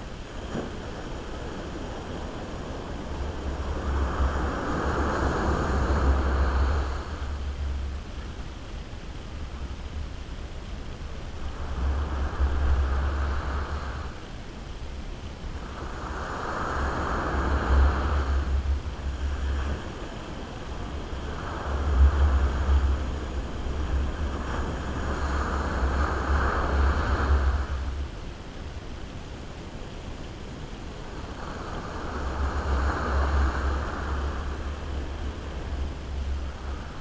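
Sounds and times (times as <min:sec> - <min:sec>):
waves breaking on shore: 0:00.0 - 0:37.0.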